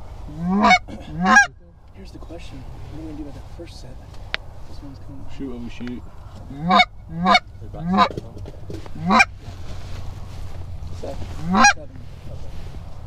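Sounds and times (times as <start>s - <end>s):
goose call honks: 0.3s - 1.6s, 6.4s - 9.7s, 11.1s - 12.0s.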